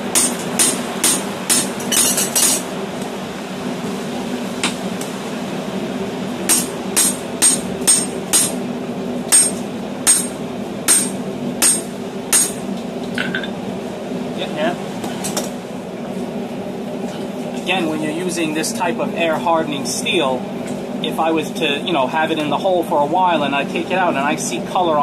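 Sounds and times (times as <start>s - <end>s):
hammer striking hot metal: 0.1s - 2.6s, 6.5s - 8.6s, 9.3s - 13.5s.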